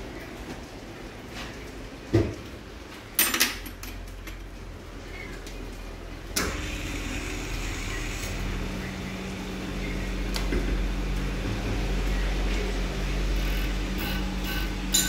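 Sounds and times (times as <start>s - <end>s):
machine low hum: 4.3s - 15.0s.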